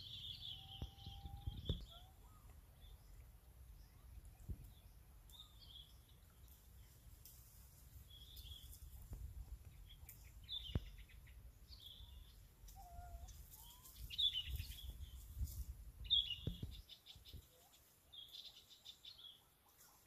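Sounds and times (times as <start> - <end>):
bird chirping with rattling trill: 0.0 - 7.0.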